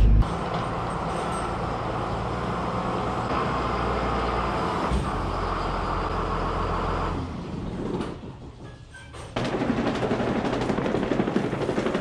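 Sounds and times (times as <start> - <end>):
tractor diesel engine running: 0.0 - 8.0.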